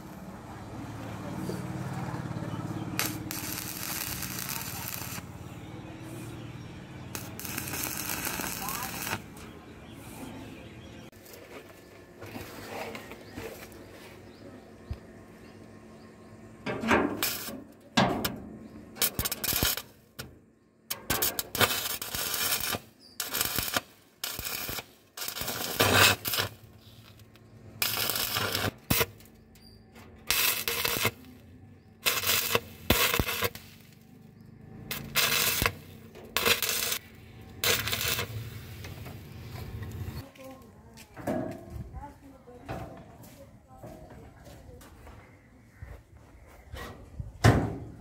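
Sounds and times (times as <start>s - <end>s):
arc welding crackling: 2.2s - 9.6s, 17.1s - 18.3s, 19.0s - 40.2s.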